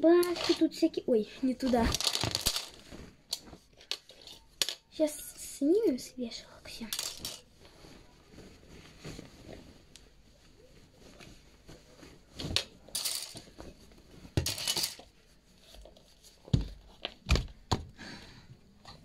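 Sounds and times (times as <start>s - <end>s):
fabric rustling and crumpling: 0.0s - 4.5s, 7.4s - 14.4s
hangers knocking and clattering: 1.6s - 4.9s, 14.4s - 15.0s.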